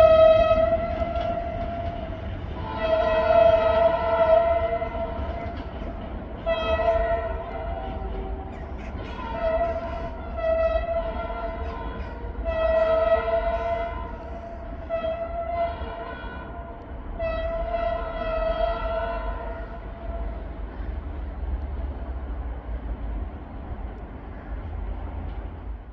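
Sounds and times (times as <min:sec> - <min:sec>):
locomotive air horn blasts: 0:00.0 - 0:05.6, 0:06.4 - 0:20.4
train running noise: 0:00.0 - 0:25.9.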